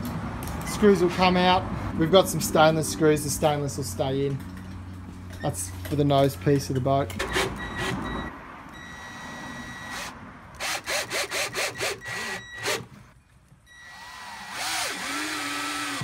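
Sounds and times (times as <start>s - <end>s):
cordless drill motor whining: 7.6s - 13.0s, 13.7s - 16.0s
screws grinding into wood: 10.0s - 12.9s, 13.9s - 16.0s.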